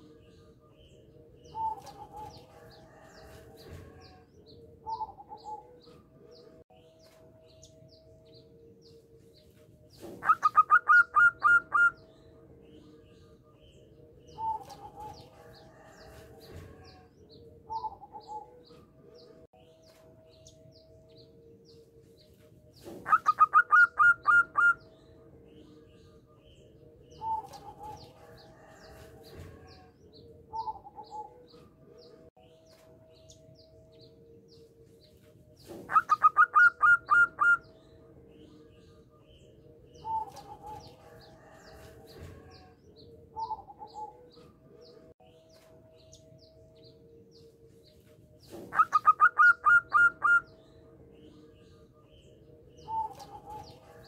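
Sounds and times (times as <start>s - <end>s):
dove cooing: 1.5s - 4.2s, 4.8s - 5.9s, 10.0s - 12.0s, 14.3s - 17.1s, 17.7s - 18.7s, 22.8s - 24.8s, 27.1s - 29.9s, 30.5s - 31.5s, 35.7s - 37.7s, 40.0s - 42.7s, 43.3s - 44.3s, 48.5s - 50.5s, 52.8s - 54.0s.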